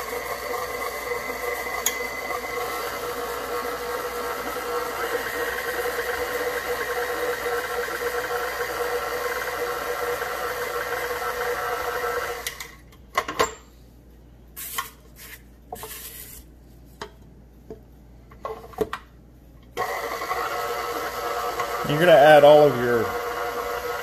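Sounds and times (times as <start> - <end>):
stand mixer motor running: 0.0 - 12.6, 19.8 - 24.0.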